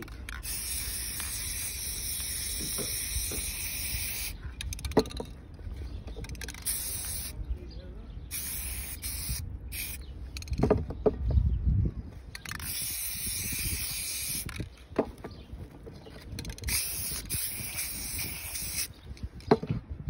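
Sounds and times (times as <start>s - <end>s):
spray paint can hissing: 0.0s - 5.2s, 6.2s - 7.4s, 8.3s - 10.5s, 12.4s - 14.7s, 16.3s - 19.3s.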